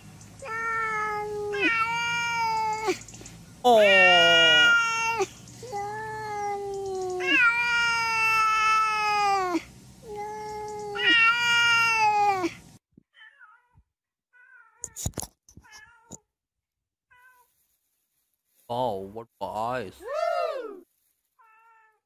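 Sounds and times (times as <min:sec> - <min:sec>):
cat meowing long calls: 0:00.4 - 0:03.0, 0:03.7 - 0:12.5
faint short cat meows: 0:17.1 - 0:17.5, 0:21.4 - 0:22.0.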